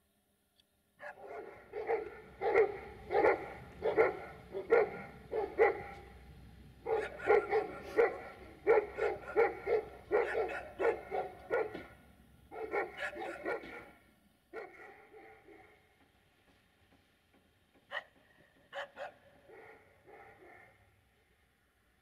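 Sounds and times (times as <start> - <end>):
dog barking: 1.0 - 6.1, 6.8 - 15.8, 17.9 - 20.9.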